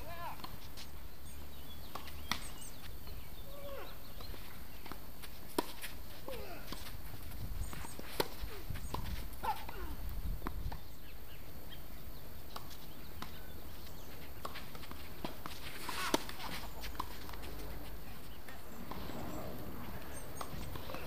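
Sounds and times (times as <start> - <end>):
tennis balls struck by rackets: 1.8 - 2.8, 4.1 - 7.0, 7.7 - 10.9, 14.4 - 21.0
steady low rumble: 17.3 - 21.0.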